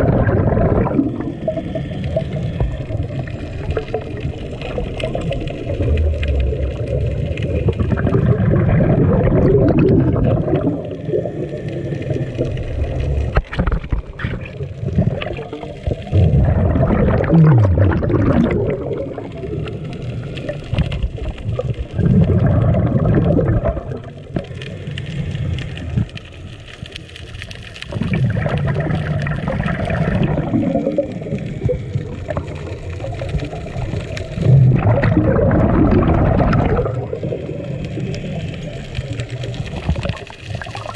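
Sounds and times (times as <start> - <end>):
underwater regulator bubbles gurgling: 0.0 - 40.9.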